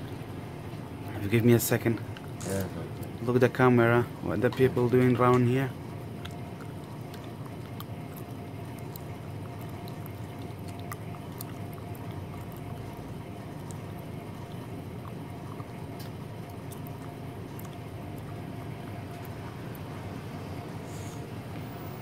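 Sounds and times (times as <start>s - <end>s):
indoor hum and hiss: 0.0s - 22.0s.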